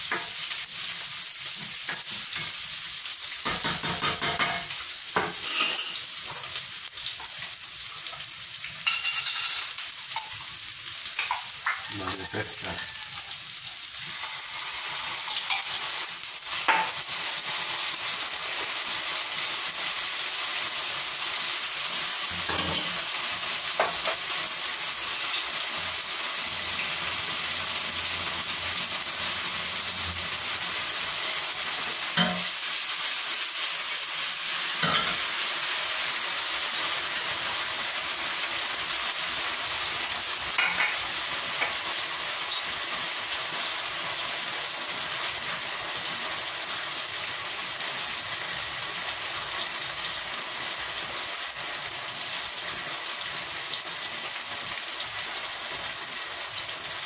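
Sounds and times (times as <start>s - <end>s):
vegetables sizzling in a pan: 0.0s - 57.0s
spoon knocking against pan: 3.4s - 5.4s, 32.2s - 32.5s, 40.6s - 41.0s.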